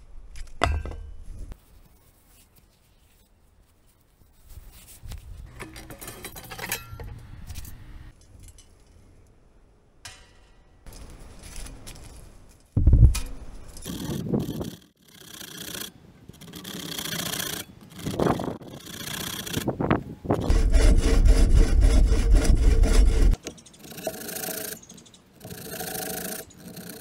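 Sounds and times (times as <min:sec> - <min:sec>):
tool handling noise: 0:00.4 - 0:01.4, 0:05.5 - 0:09.0
light metallic rattling and clatter: 0:05.5 - 0:09.1.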